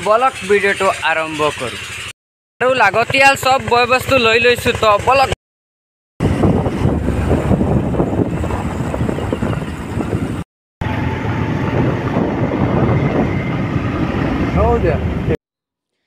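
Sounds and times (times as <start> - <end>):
vehicle road noise: 0.0 - 5.4, 6.2 - 15.4
wind buffeting microphone: 6.2 - 15.4.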